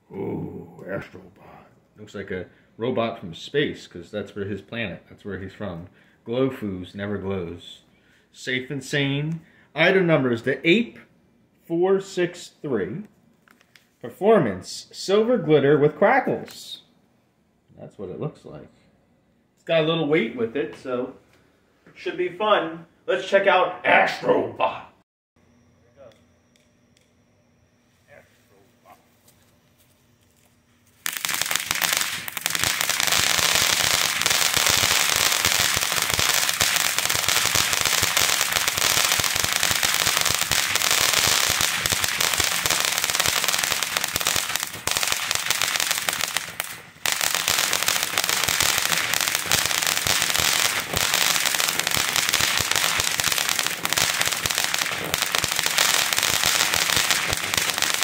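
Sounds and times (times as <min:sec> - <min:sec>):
hissing crackling sparks: 0:29.4 - 0:58.0
firework fountain igniting: 0:30.9 - 0:58.0.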